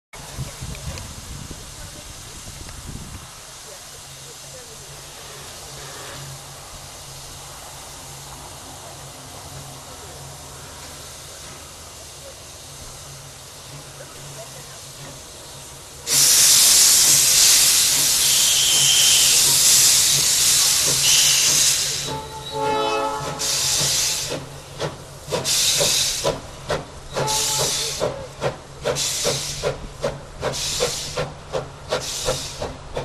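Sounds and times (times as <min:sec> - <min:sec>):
steam hissing from locomotive: 0:00.2 - 0:33.0
steam locomotive exhaust chuffs: 0:00.2 - 0:33.0
steam whistle blast: 0:16.1 - 0:19.5, 0:20.8 - 0:24.2, 0:27.1 - 0:28.0.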